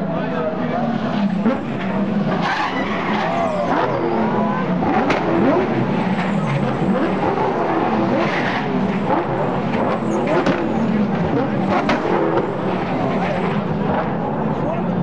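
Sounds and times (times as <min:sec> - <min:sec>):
race car engines downshifting: 0:00.0 - 0:15.0
tyres squealing: 0:02.3 - 0:04.7.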